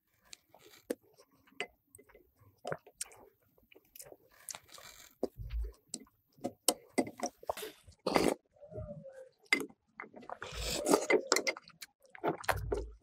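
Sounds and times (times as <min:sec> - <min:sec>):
lip and mouth noises: 0:09.5 - 0:13.0
soup slurping: 0:10.2 - 0:12.8.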